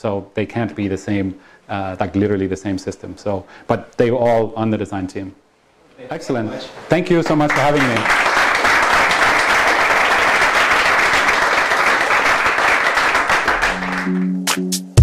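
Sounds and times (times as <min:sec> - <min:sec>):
audience applauding: 0:07.1 - 0:14.6
music: 0:13.5 - 0:15.0.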